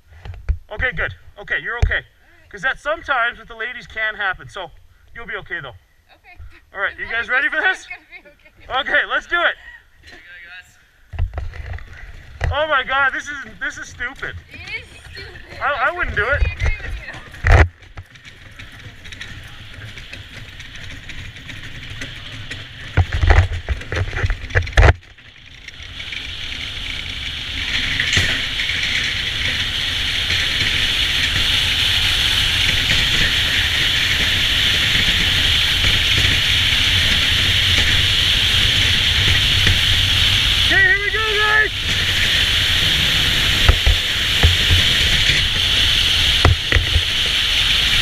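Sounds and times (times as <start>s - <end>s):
sled runners hissing on ice: 12.0s - 17.4s, 25.6s - 48.0s
loud thumps: 32.4s - 47.4s.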